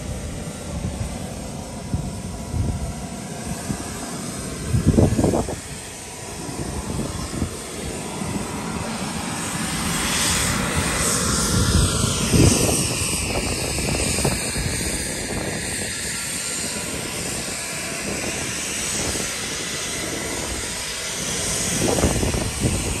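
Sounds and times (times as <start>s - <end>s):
jet engine roar: 0.0s - 23.0s.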